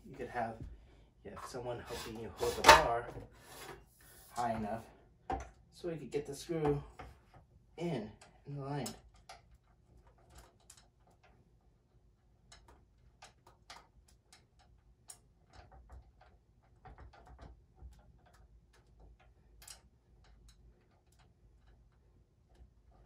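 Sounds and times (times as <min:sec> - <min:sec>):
small metal clicks and taps: 0:08.2 - 0:11.5, 0:12.4 - 0:23.0.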